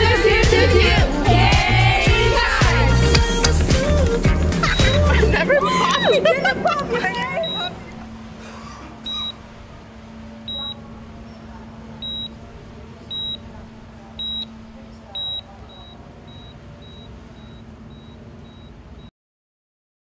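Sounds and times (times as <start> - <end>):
faint voices: 0.0 - 18.4
low hum: 0.0 - 18.7
short high electronic beeps: 7.4 - 7.8, 9.1 - 9.4, 12.0 - 12.4, 14.2 - 14.5, 15.2 - 18.7.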